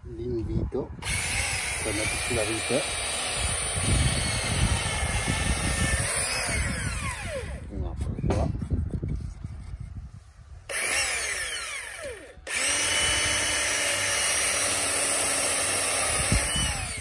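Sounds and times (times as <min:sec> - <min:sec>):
cordless drill boring into wood: 0:01.0 - 0:07.7, 0:10.7 - 0:17.0.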